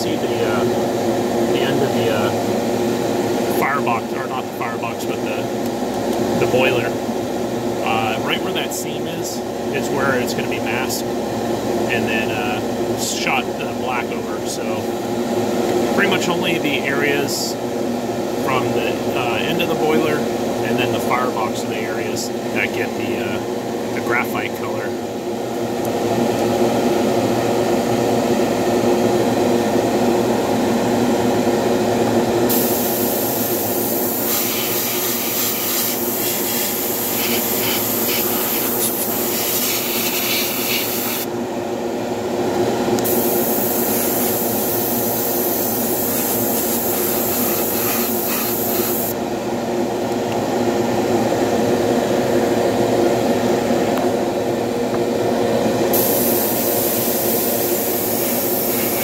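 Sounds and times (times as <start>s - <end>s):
steady machine hum: 0.0s - 59.0s
airbrush hissing: 32.5s - 41.3s, 43.1s - 49.2s, 55.9s - 59.0s.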